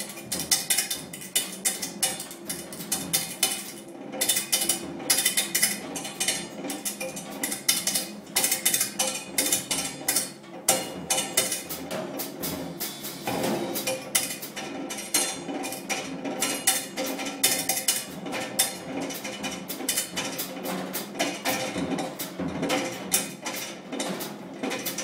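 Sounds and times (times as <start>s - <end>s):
drum kit stick strikes: 10.7s - 15.4s.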